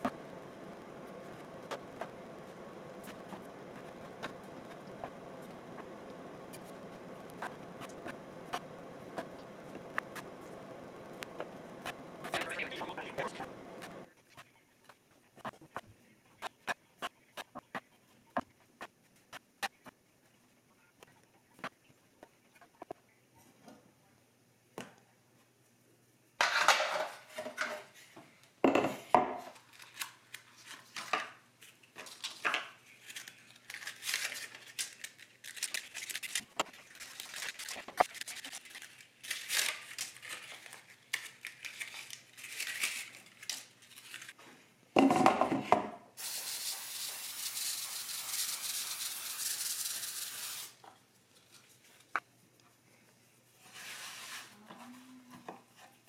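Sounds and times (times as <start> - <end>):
steady hiss: 0.0 - 14.1, 46.2 - 50.8.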